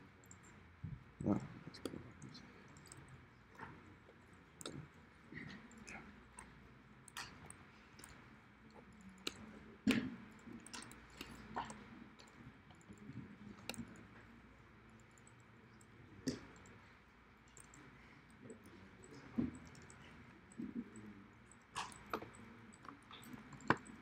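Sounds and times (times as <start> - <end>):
mouse and keyboard clicks: 17.5 - 17.8, 21.5 - 24.0.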